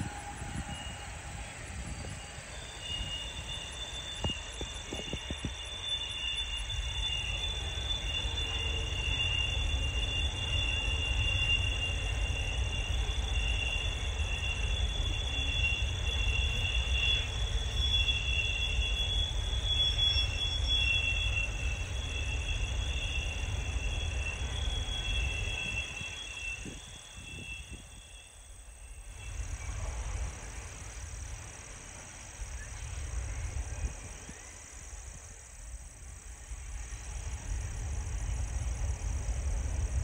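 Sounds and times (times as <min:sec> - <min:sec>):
distant freight train rumble: 0:00.0 - 0:40.0
insects trilling: 0:00.0 - 0:40.0.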